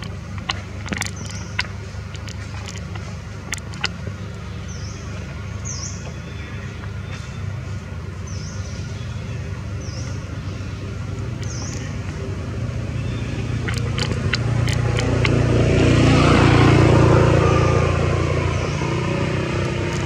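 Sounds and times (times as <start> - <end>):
low traffic rumble: 0.0 - 20.0
sharp clicks: 13.4 - 15.4.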